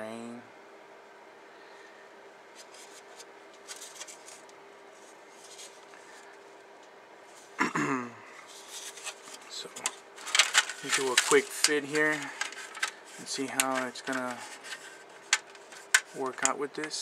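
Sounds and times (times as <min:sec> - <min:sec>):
person humming hmm: 0:07.6 - 0:08.3
plastic bags crinkling: 0:08.5 - 0:17.0.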